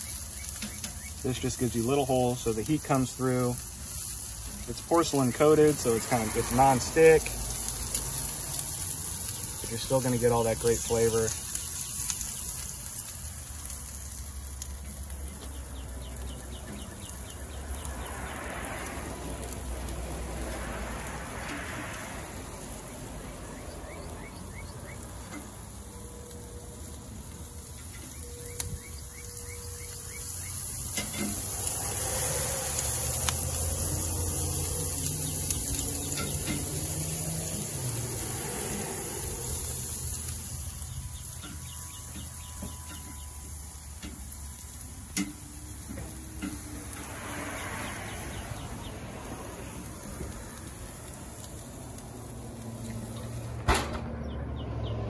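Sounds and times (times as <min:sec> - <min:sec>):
chicken sizzling on a grill: 0:00.0 - 0:55.0
metal tongs clicking on grate: 0:31.0 - 0:31.4.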